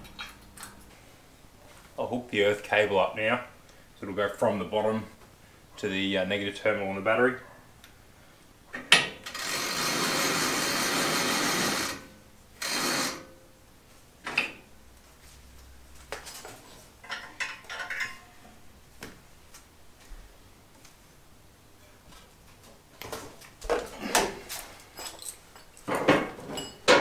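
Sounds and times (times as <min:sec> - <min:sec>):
power tool running: 0:09.3 - 0:13.2
tools clicking and knocking: 0:17.0 - 0:18.3.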